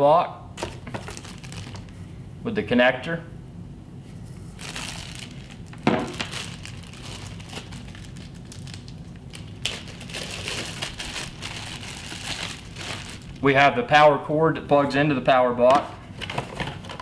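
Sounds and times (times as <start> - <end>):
plastic bags crinkling: 0.6 - 2.0, 4.5 - 13.6.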